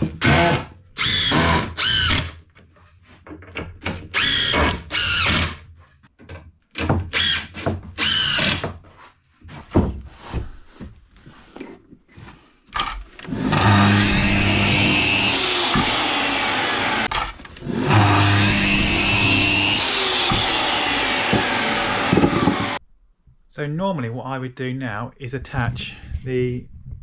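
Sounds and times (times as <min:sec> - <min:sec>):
impact driver driving screws: 0:03.8 - 0:05.6, 0:13.2 - 0:22.8
mitre saw motor running: 0:13.3 - 0:22.8.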